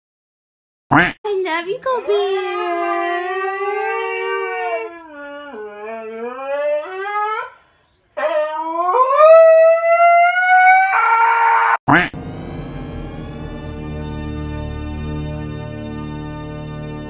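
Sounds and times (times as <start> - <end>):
dog howling: 1.9 - 7.6, 8.2 - 11.8.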